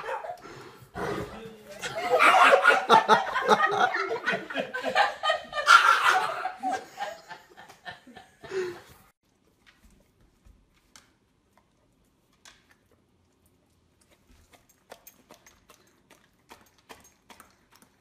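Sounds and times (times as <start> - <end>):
person laughing: 1.8 - 9.0.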